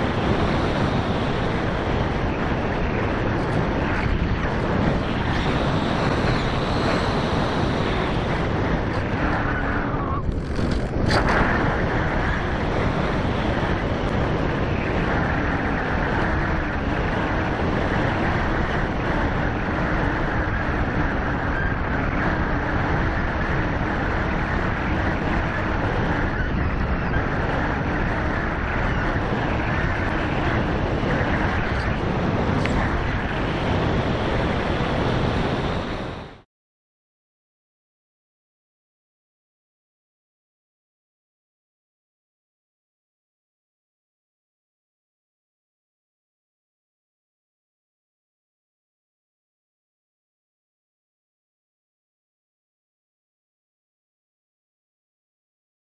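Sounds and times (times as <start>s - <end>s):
wind buffeting microphone: 0.0s - 36.4s.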